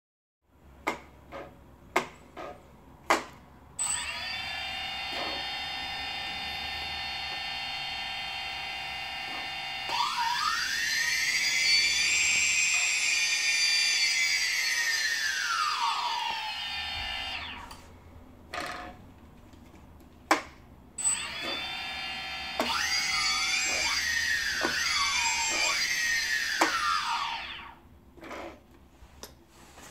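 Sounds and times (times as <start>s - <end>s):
drone motors whining: 3.8s - 17.9s, 21.0s - 27.8s.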